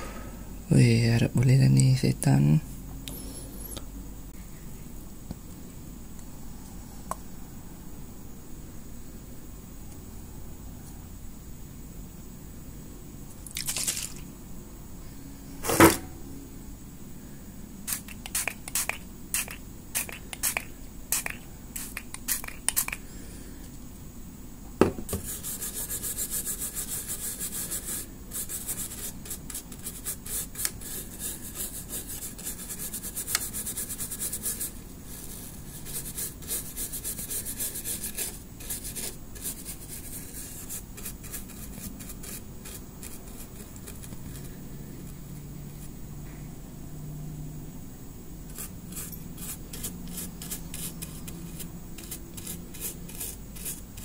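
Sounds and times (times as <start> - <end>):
loud knock: 15.6 - 16.2.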